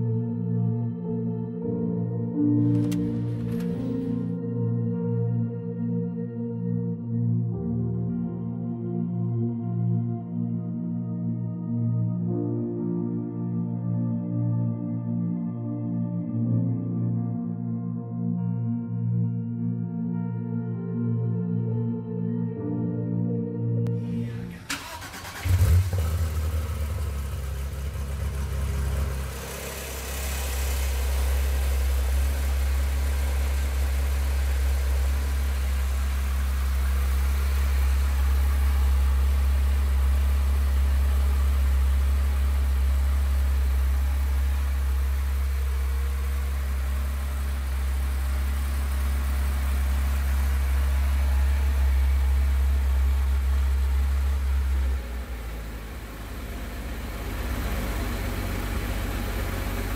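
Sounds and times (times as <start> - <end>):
car engine starting and idling: 2.5 - 4.4, 23.8 - 59.9.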